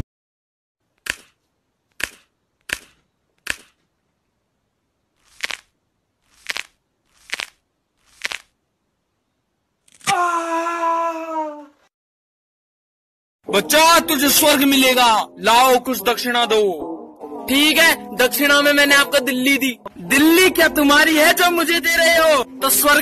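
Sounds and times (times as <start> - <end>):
short sharp clicks: 1.0 - 1.4, 2.0 - 3.9.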